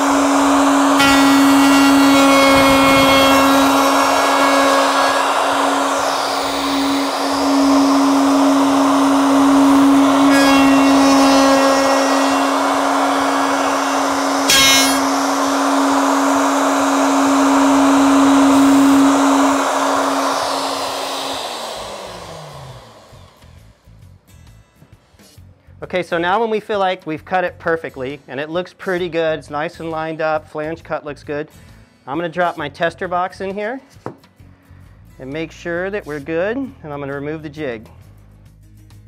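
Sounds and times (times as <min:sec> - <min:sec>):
router cutting foam: 0:00.0 - 0:23.5
router whine winding down: 0:00.0 - 0:23.8.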